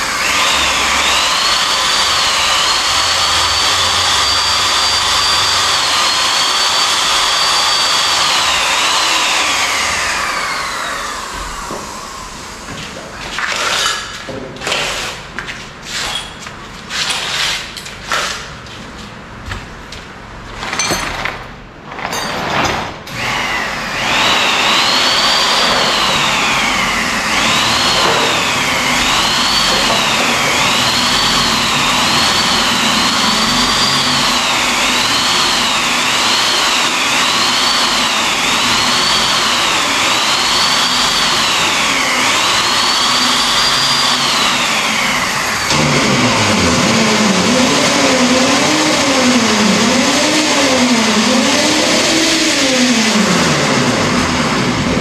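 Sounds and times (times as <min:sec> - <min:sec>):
electric drill boring into metal: 0:00.0 - 0:12.2, 0:23.1 - 0:54.5.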